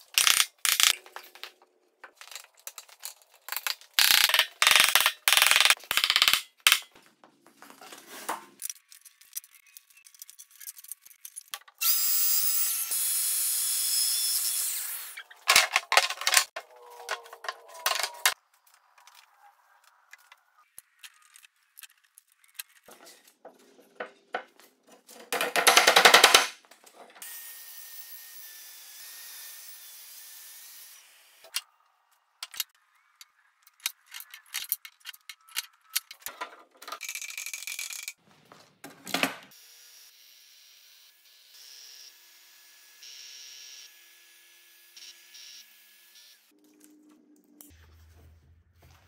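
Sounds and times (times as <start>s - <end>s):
clamps and boards knocking: 25.2s - 26.6s.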